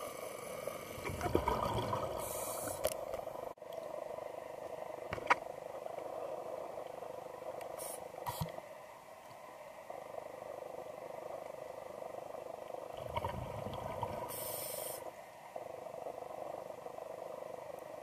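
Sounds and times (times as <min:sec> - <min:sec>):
muffled underwater noise: 0:00.0 - 0:03.2.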